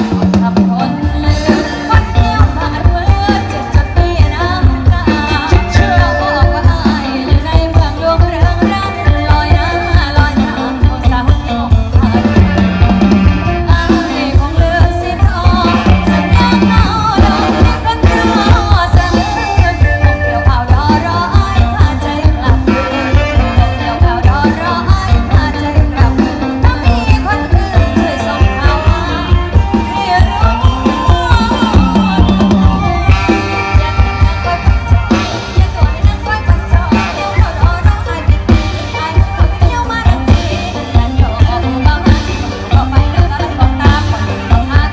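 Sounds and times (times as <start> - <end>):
electric guitars: 0.0 - 44.9
woman singing: 0.0 - 44.9.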